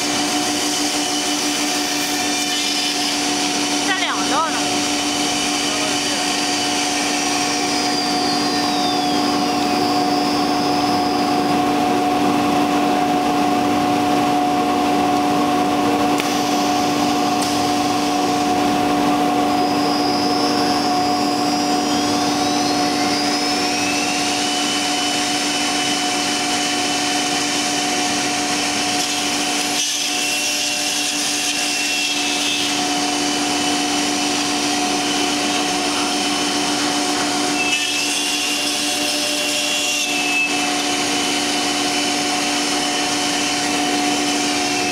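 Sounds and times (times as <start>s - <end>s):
dust extraction drawing air: 0.0s - 13.0s, 14.2s - 30.2s
cnc router whining: 0.0s - 44.9s.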